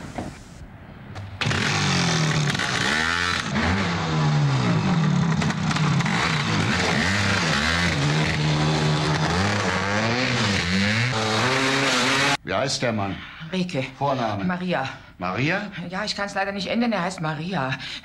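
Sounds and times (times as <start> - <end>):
motorcycle engine revving: 1.3 - 12.4.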